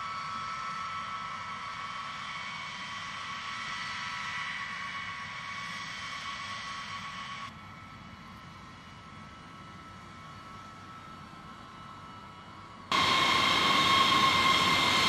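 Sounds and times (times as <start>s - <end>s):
jet engines whining: 12.9s - 15.0s.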